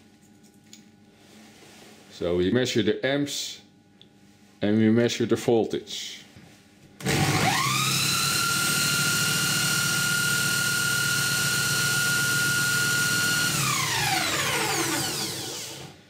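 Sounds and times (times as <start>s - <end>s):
power drill whine: 7.0s - 16.0s.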